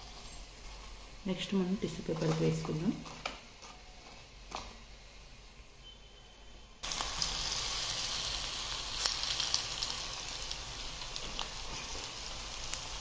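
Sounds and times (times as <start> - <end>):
fritters sizzling in hot oil: 0.0 - 3.0, 6.8 - 13.0.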